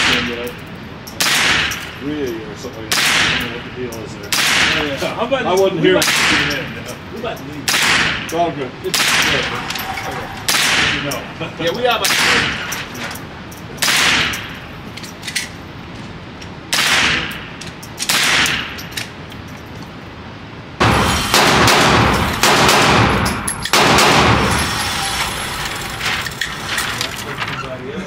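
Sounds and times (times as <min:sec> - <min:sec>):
overlapping gunfire: 0:01.2 - 0:01.9, 0:04.3 - 0:05.0, 0:06.0 - 0:06.8, 0:07.7 - 0:08.3, 0:08.9 - 0:09.6, 0:12.0 - 0:12.7, 0:13.8 - 0:14.6, 0:16.7 - 0:17.5, 0:18.1 - 0:18.8, 0:20.8 - 0:24.8
gunshots echoing: 0:01.2 - 0:02.0, 0:02.9 - 0:03.7, 0:04.3 - 0:05.0, 0:06.0 - 0:06.8, 0:07.6 - 0:11.4, 0:12.0 - 0:13.0, 0:13.8 - 0:14.8, 0:16.7 - 0:18.9, 0:20.8 - 0:24.8.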